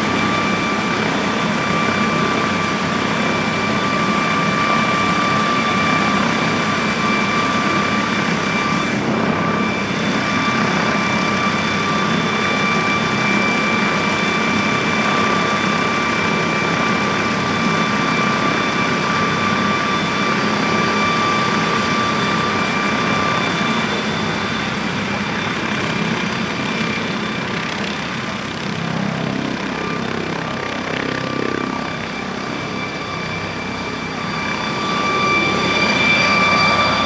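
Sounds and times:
helicopter rotor turning: 0:00.0 - 0:37.0
helicopter turbines whining: 0:00.0 - 0:37.0.

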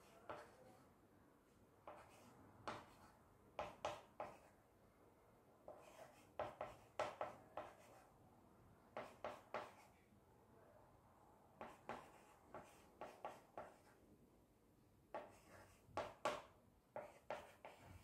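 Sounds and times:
chalk scratching on blackboard: 0:01.9 - 0:04.5, 0:05.7 - 0:08.1, 0:09.0 - 0:10.0, 0:11.6 - 0:14.0, 0:15.1 - 0:18.0.

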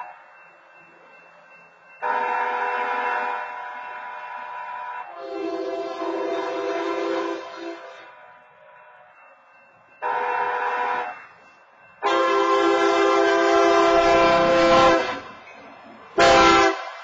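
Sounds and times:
locomotive air horn chord: 0:02.0 - 0:08.1, 0:10.0 - 0:11.2, 0:12.0 - 0:15.3, 0:16.2 - 0:17.0.

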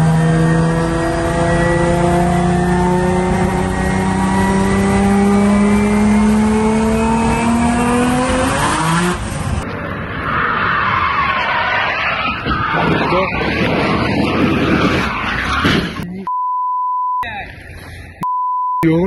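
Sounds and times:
race car engine at full throttle: 0:00.0 - 0:16.3
harsh rushing noise: 0:07.2 - 0:16.1.

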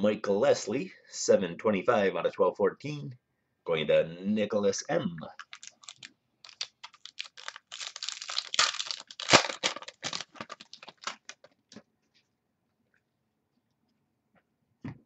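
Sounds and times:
trading cards clicking and rustling: 0:05.4 - 0:11.6.

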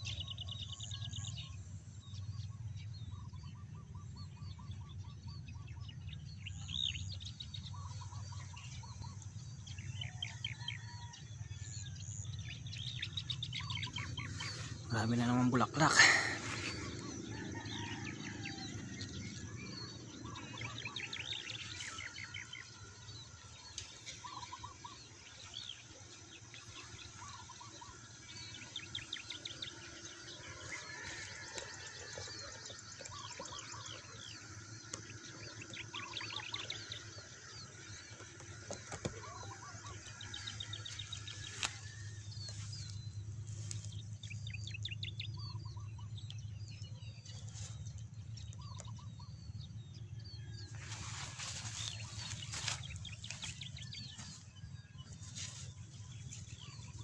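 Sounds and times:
small birds chirping and trilling: 0:00.0 - 0:57.0
steady low rumble: 0:39.7 - 0:57.0.

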